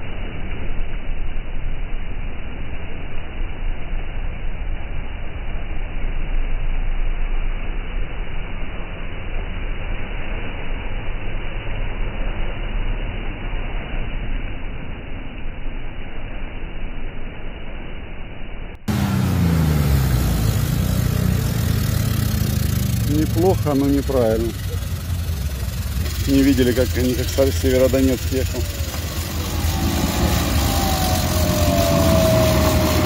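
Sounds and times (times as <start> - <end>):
engine rumbling under load: 18.7 - 33.0
tyres churning through mud: 18.9 - 33.0.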